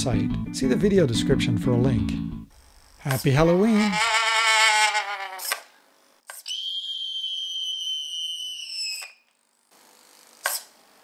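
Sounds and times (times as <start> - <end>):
high whistle-like tone: 6.4 - 9.2.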